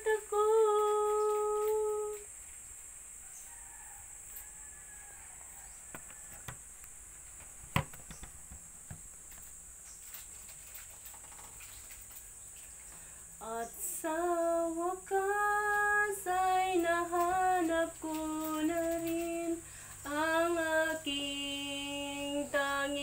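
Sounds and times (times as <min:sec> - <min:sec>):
woman singing sustained note: 0:00.0 - 0:02.3
high insect drone: 0:00.0 - 0:23.0
distant rooster crowing: 0:03.2 - 0:06.7
microphone handling knock: 0:07.4 - 0:09.1.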